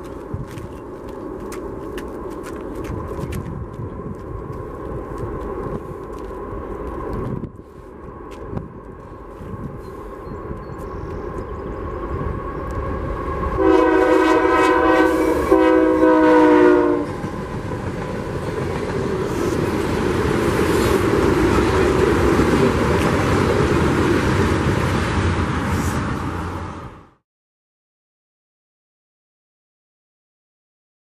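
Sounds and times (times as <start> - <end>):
train air horn blasts: 13.4 - 17.2.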